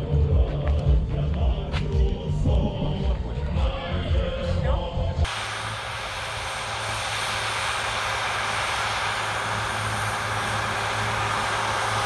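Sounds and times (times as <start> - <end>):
heavy machine engine running: 5.3 - 12.0.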